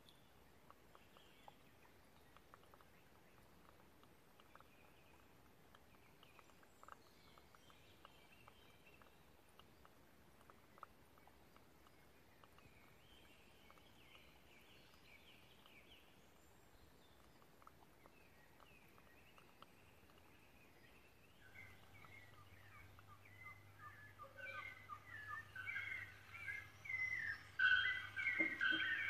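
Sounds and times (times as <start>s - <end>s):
faint background hiss: 0.0s - 29.0s
small ticks: 0.0s - 29.0s
faint high twittering: 18.2s - 29.0s.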